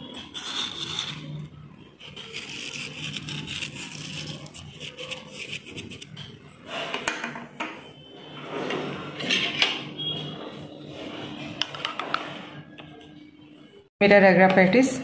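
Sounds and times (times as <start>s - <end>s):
spoon scraping and clinking plate: 0.0s - 6.4s.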